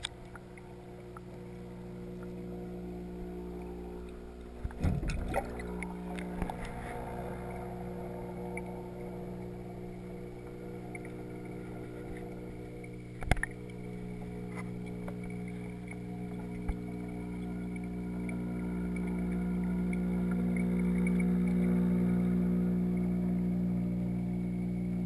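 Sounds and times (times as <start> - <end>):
muffled underwater electric hum: 0.0 - 25.0.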